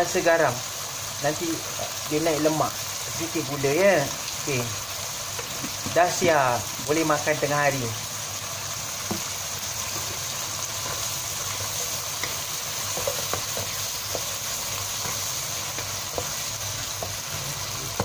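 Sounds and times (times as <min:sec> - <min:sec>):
vegetables sizzling in a wok: 0:00.0 - 0:18.0
spatula tapping and scraping pan: 0:10.8 - 0:18.0.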